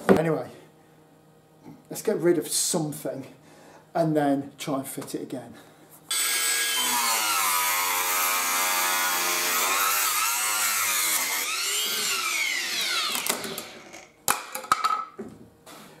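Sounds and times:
angle grinder cutting fibreglass: 6.1 - 14.1.

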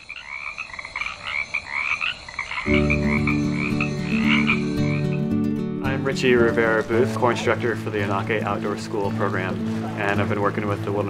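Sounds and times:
frogs croaking: 0.0 - 11.0
low droning held notes: 2.7 - 8.7.

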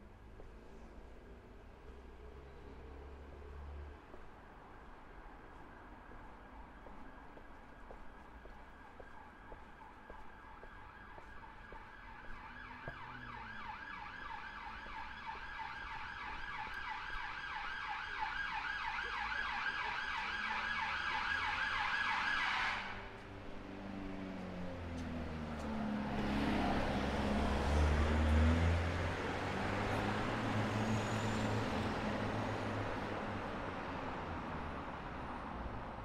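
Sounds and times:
emergency siren yelping: 8.8 - 23.1
vehicle engine: 23.0 - 35.2.

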